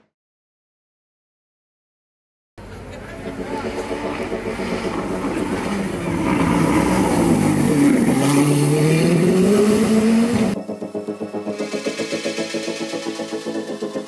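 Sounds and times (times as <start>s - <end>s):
racing car engine accelerating: 2.6s - 14.0s
music with steady beat: 3.2s - 7.2s, 9.1s - 14.0s.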